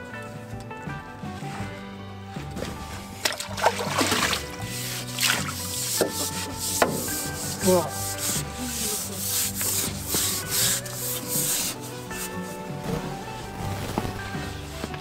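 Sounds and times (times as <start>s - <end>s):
brush scrubbing wet steel deck: 2.7s - 13.8s.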